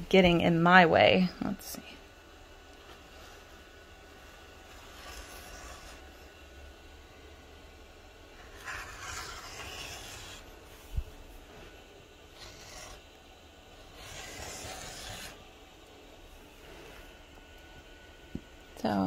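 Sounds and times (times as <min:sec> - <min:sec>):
rotary cutter rasping through fabric: 0:04.5 - 0:06.3, 0:08.4 - 0:10.6, 0:12.3 - 0:13.2, 0:13.8 - 0:15.4.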